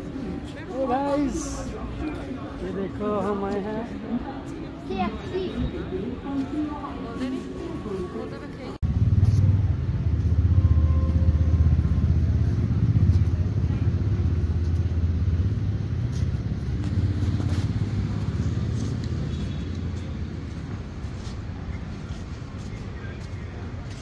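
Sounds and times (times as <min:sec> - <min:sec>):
low vehicle rumble: 0:08.8 - 0:21.7.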